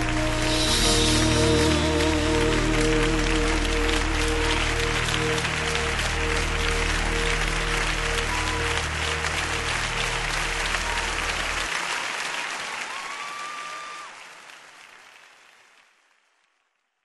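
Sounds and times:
sustained music notes: 0.0s - 11.7s
audience applauding: 0.0s - 16.7s.

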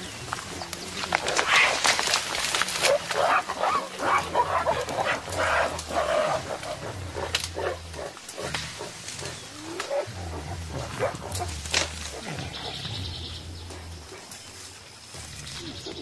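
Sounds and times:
gorilla rumbling grunts: 0.0s - 16.0s
sharp clicks: 5.7s - 7.6s.

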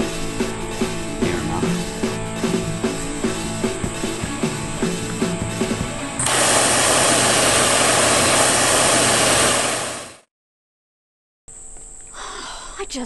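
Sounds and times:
rock music with drum beat: 0.0s - 6.3s.

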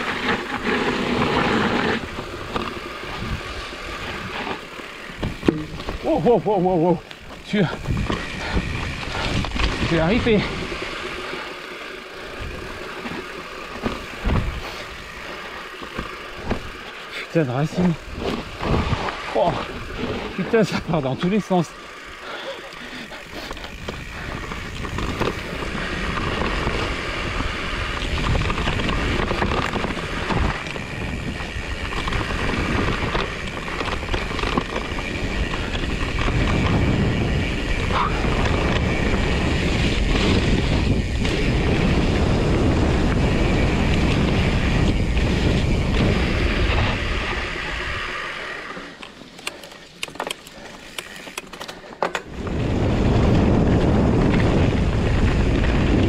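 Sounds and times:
bike tyre and drivetrain noise: 0.0s - 56.0s
wind on microphone: 23.2s - 48.2s, 52.3s - 56.0s
sharp clicks and knocks: 49.0s - 52.3s.

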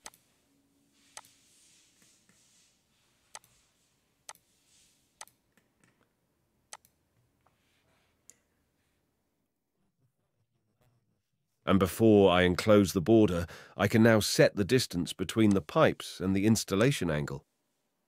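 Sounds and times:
computer mouse clicking: 3.3s - 3.6s, 6.7s - 7.0s.

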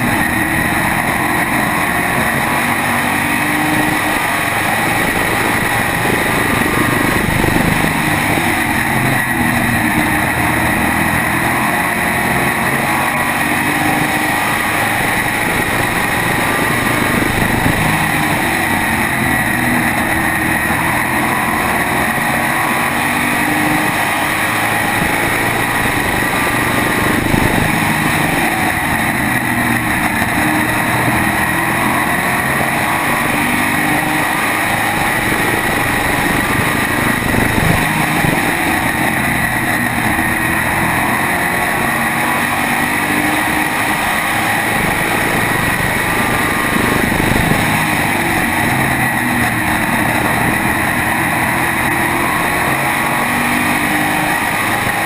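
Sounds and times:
race car engine running hard: 0.0s - 55.0s.

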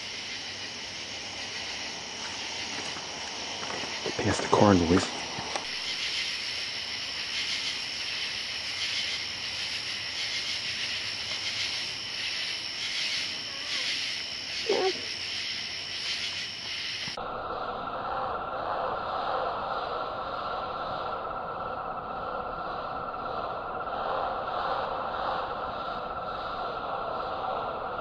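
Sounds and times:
insects trilling: 0.0s - 28.0s
low slowed insect drone: 0.0s - 28.0s.

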